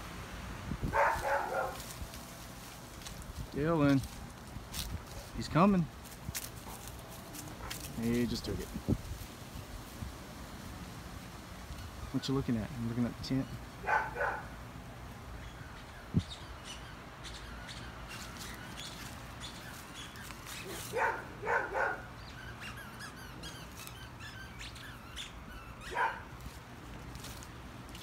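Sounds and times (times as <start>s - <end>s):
small birds chirping: 11.6s - 28.0s
short squeaky sounds: 22.3s - 26.2s.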